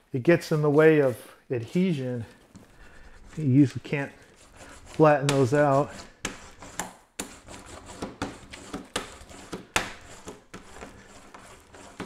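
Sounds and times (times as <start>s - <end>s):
rubber roller rolling and scraping: 3.2s - 12.0s.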